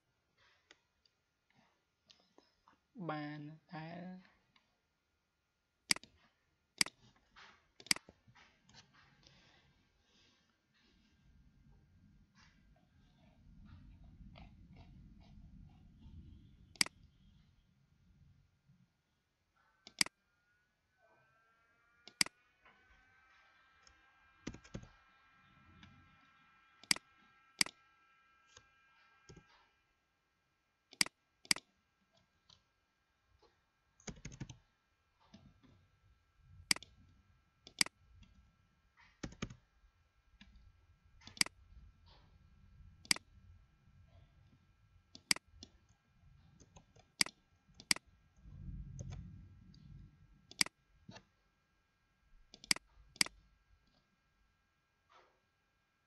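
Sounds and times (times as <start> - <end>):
computer mouse clicks: 5.9 - 7.1, 7.8 - 9.4, 14.3 - 17.2, 19.8 - 20.2, 22.0 - 22.4, 23.8 - 25.0, 26.8 - 27.8, 29.3 - 29.6, 30.9 - 32.6, 34.0 - 34.6, 36.7 - 38.4, 39.1 - 39.6, 40.4 - 42.3, 43.0 - 43.3, 45.2 - 49.9, 50.5 - 51.3, 52.5 - 54.0
keyboard typing: 5.9 - 7.1, 7.8 - 9.4, 13.1 - 17.3, 19.8 - 20.2, 22.0 - 22.4, 23.8 - 26.0, 26.8 - 27.8, 29.3 - 29.6, 30.9 - 31.7, 34.0 - 35.8, 36.7 - 37.1, 37.7 - 38.4, 39.0 - 39.7, 41.2 - 42.2, 45.2 - 51.3, 52.5 - 54.0.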